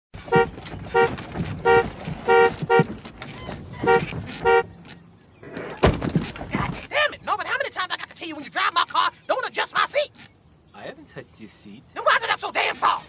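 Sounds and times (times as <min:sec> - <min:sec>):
car horn honking: 0:00.2 - 0:03.0, 0:03.7 - 0:04.8.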